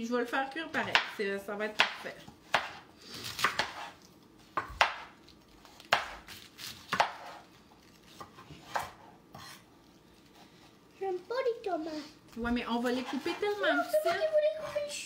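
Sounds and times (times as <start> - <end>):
knives chopping on cutting boards: 0.8 - 1.2, 1.8 - 5.2, 5.9 - 7.4, 8.2 - 9.6.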